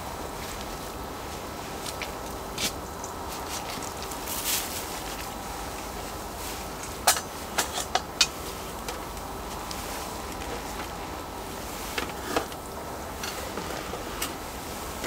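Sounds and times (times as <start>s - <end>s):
outdoor background hum: 0.0s - 15.0s
soft shuffle: 0.2s - 6.8s
food laid on metal griddle: 0.2s - 15.0s.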